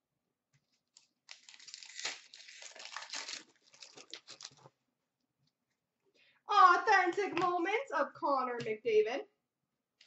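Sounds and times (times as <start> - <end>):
card pack wrapper tearing and crinkling: 0.9 - 4.8.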